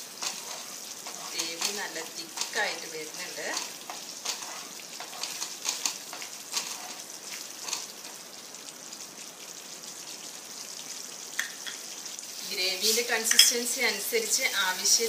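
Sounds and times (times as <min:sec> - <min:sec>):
wooden spatula stirring: 0:00.0 - 0:08.2
gravy sizzling in a pan: 0:00.0 - 0:15.0.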